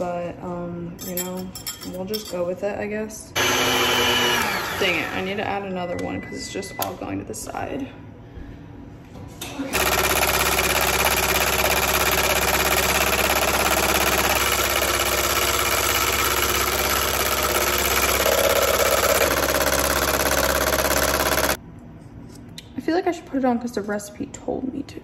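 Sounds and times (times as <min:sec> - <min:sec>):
electric mixer running: 0:03.4 - 0:05.5, 0:09.7 - 0:21.6.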